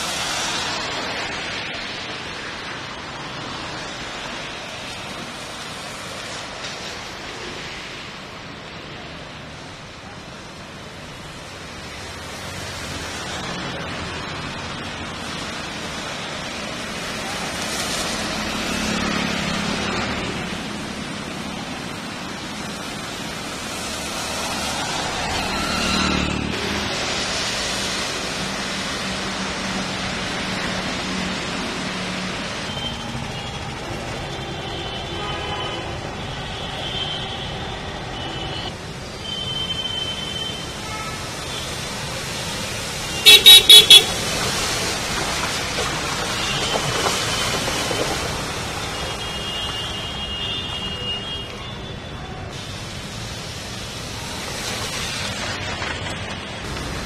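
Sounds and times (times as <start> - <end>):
vehicles passing on wet road: 0.0 - 57.0
loud horn blasts: 43.1 - 44.2
horn toots: 43.2 - 44.2.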